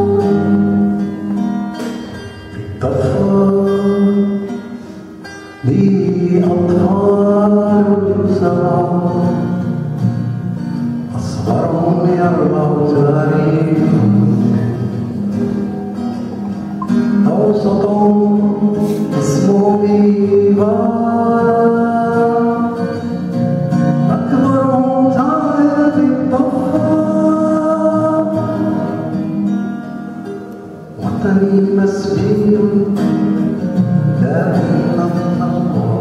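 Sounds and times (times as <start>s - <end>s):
person singing: 0.0s - 1.1s, 2.4s - 9.7s, 11.1s - 23.2s, 24.1s - 29.4s, 31.0s - 33.3s, 34.0s - 36.0s
acoustic guitar: 0.0s - 36.0s.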